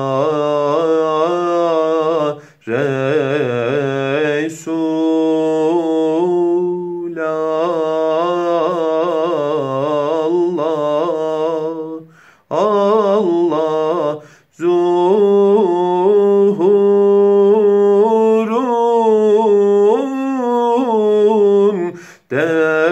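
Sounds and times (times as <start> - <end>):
man singing unaccompanied hymn: 0.0 - 22.9
singer breathing: 2.4 - 2.7, 12.0 - 12.5, 14.2 - 14.6, 21.9 - 22.3.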